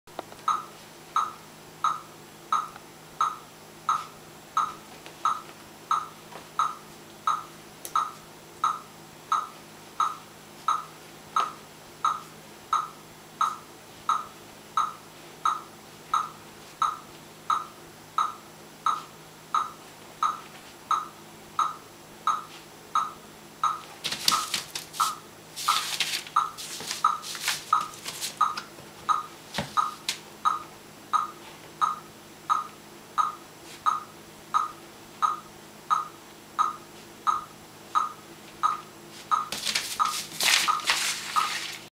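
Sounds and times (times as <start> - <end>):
high-pitched beeps: 0.5 - 23.9, 26.4 - 40.2
newspaper crinkling: 24.0 - 28.4, 39.6 - 41.9.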